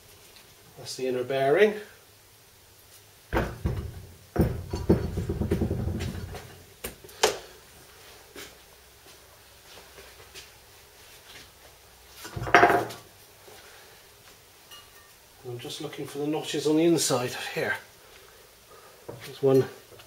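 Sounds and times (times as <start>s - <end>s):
sharp knocks: 3.3s - 6.5s
metal clunk and scrape: 3.4s - 6.6s.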